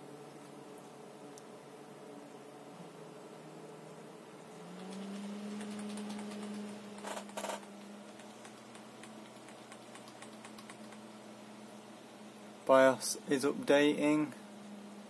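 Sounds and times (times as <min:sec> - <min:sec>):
computer fans humming: 0:00.0 - 0:15.0
sharp clicks: 0:04.8 - 0:11.1.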